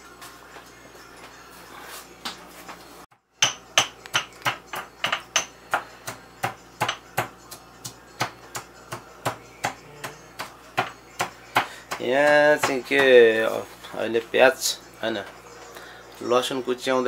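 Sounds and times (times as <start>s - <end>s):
stone pestle pounding in mortar: 3.4s - 13.2s.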